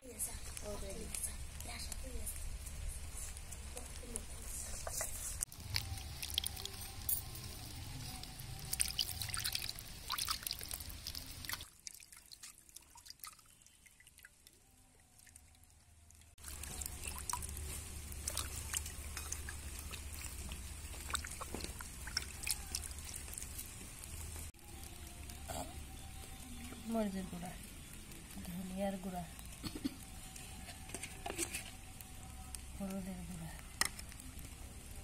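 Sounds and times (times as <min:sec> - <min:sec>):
water splashing in a wooden bowl: 0:05.5 - 0:25.3.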